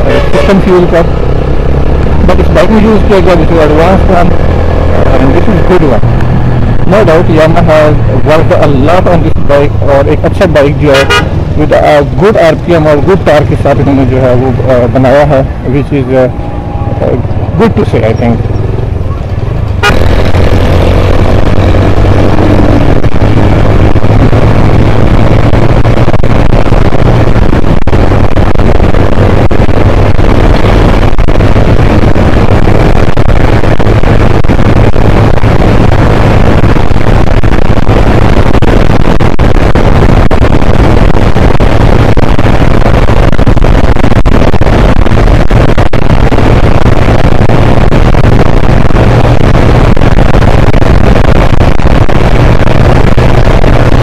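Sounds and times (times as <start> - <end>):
wind rush on microphone: 0.0 - 15.7, 16.3 - 54.0
motorcycle engine cruising: 13.8 - 54.0.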